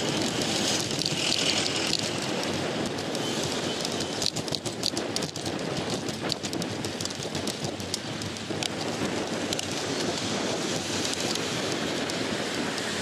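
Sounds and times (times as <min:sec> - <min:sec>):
bicycle ticks and rattles: 0:00.0 - 0:13.0
bicycle tyre noise: 0:00.0 - 0:13.0
wind noise: 0:00.0 - 0:13.0.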